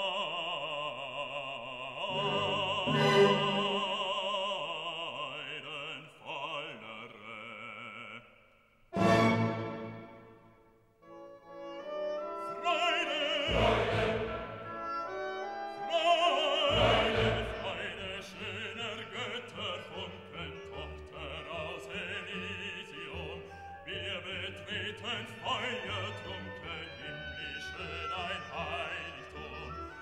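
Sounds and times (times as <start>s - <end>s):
opera singing with vibrato: 0.0s - 8.2s, 12.3s - 30.0s
orchestra playing: 2.1s - 4.0s, 9.0s - 10.5s, 11.1s - 23.3s.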